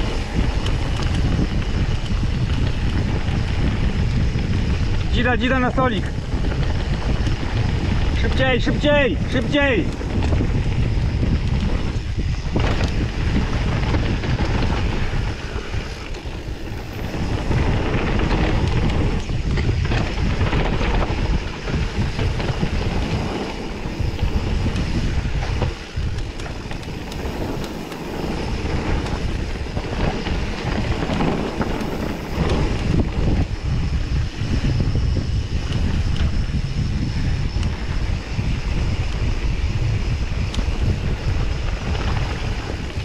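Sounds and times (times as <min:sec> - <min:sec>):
tyres rolling over dirt: 0:00.0 - 0:34.2
bike rattling over bumps: 0:00.0 - 0:43.0
wind buffeting microphone: 0:00.0 - 0:43.0.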